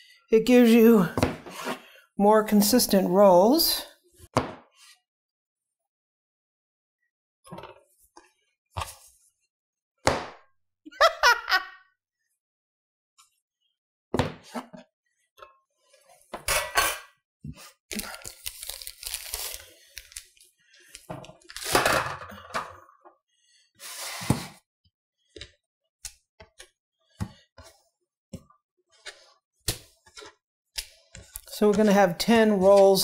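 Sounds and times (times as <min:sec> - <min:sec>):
kitchen rustling and scraping: 0:01.1 - 0:02.9, 0:15.8 - 0:17.8, 0:19.1 - 0:22.9, 0:28.9 - 0:33.0.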